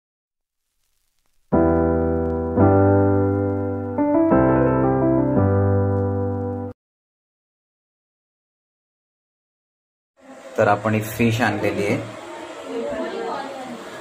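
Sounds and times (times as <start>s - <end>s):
electronic keyboard chords: 1.5s - 6.8s.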